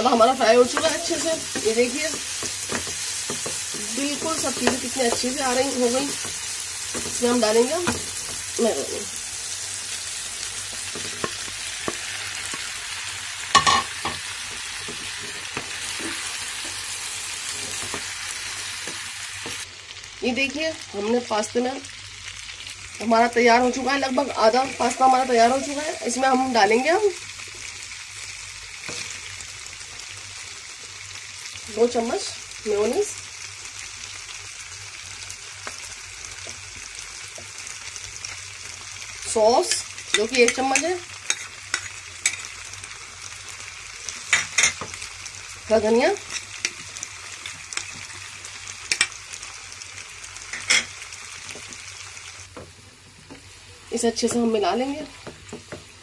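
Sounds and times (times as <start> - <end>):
food sizzling in a frying pan: 0.0 - 56.0
spatula knocking while stirring: 0.7 - 7.2.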